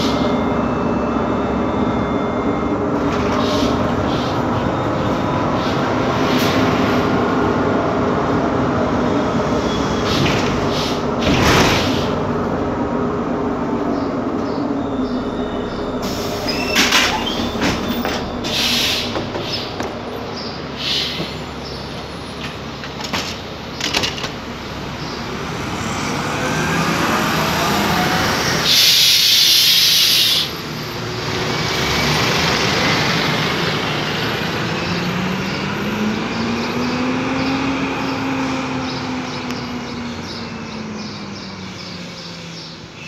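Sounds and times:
bus engine: 0.0 - 43.0
compressed air hiss: 28.7 - 30.5.

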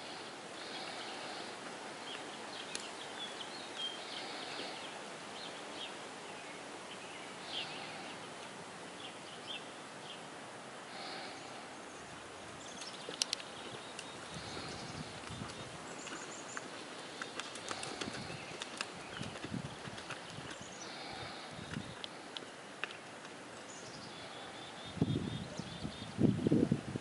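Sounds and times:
background hiss: 0.0 - 27.0
sharp clicks: 12.8 - 14.1
bird chirps: 23.6 - 26.2.

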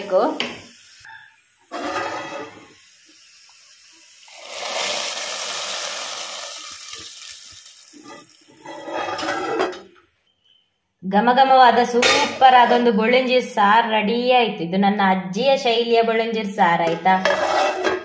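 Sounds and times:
oil sizzling: 0.0 - 9.9.

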